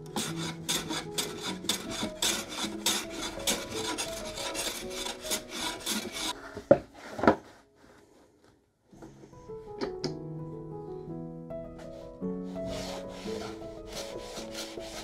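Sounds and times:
hand plane scraping strokes: 0:00.0 - 0:08.0, 0:12.5 - 0:15.0.

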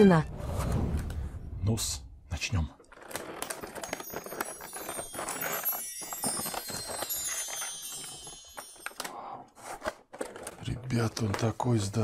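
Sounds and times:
plastic packaging crackling: 0:02.8 - 0:12.0
shimmering high chimes: 0:03.6 - 0:09.4.

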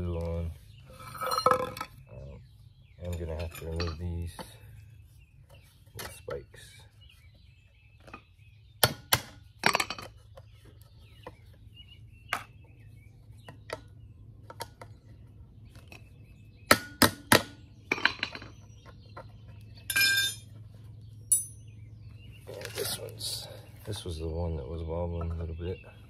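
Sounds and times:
metallic clinks and knocks: 0:03.1 - 0:04.5, 0:19.8 - 0:20.5, 0:21.3 - 0:21.7.

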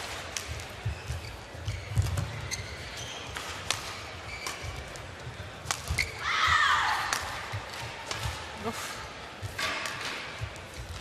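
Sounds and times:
shoes squeaking: 0:00.0 - 0:06.6.

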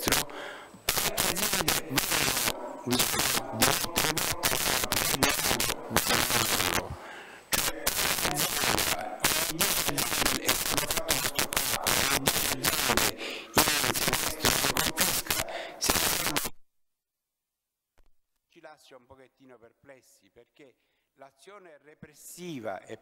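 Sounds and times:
man speaking: 0:00.0 - 0:00.4, 0:01.0 - 0:07.0, 0:07.6 - 0:16.5, 0:18.6 - 0:23.0
crackling static: 0:00.0 - 0:16.6.

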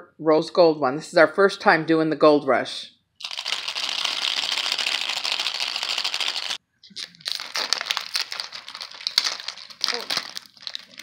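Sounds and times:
plastic crinkling: 0:03.2 - 0:11.0
plastic wrap rustling hiss: 0:03.2 - 0:11.0.

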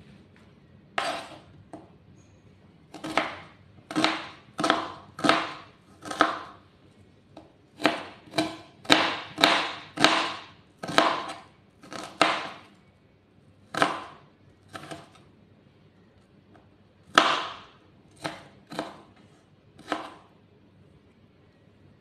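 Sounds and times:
knife chopping on plastic board: 0:01.0 - 0:01.9, 0:02.9 - 0:06.6, 0:07.4 - 0:12.7, 0:13.7 - 0:15.2, 0:17.1 - 0:19.2, 0:19.8 - 0:20.3.

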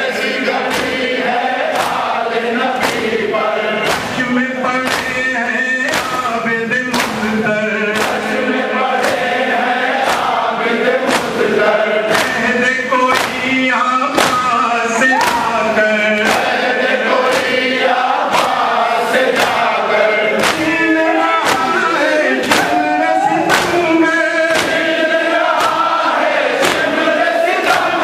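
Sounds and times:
crowd of men singing along: 0:00.0 - 0:28.0
man chanting lament: 0:02.4 - 0:10.6, 0:11.6 - 0:17.2, 0:18.4 - 0:28.0
hands striking chests: 0:03.8 - 0:04.2, 0:04.8 - 0:05.2, 0:06.9 - 0:07.3, 0:13.2 - 0:13.4, 0:14.2 - 0:15.6, 0:20.4 - 0:24.9.

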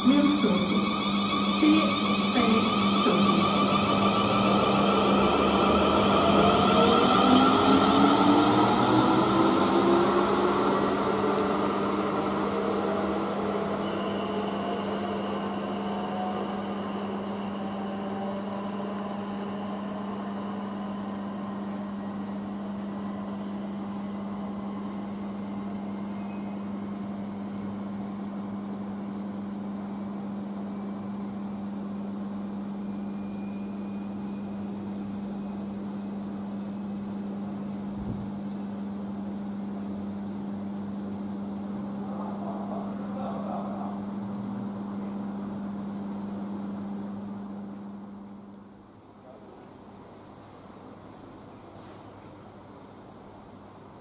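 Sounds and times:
electric train motor whine: 0:00.0 - 0:36.8.

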